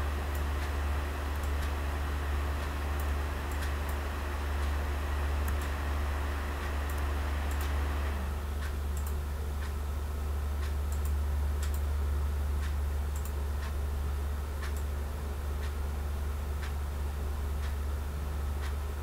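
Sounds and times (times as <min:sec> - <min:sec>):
low electrical hum: 0:00.0 - 0:19.0
computer mouse clicking: 0:00.3 - 0:01.8, 0:05.4 - 0:05.8, 0:06.6 - 0:07.8, 0:08.6 - 0:09.8, 0:10.6 - 0:11.9, 0:12.6 - 0:13.8, 0:14.6 - 0:14.9.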